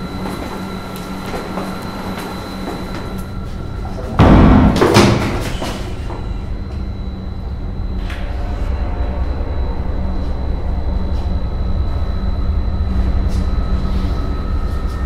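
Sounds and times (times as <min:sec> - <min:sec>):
low ambient drone: 0:00.0 - 0:15.0
loud bang with rumble: 0:04.2 - 0:06.7.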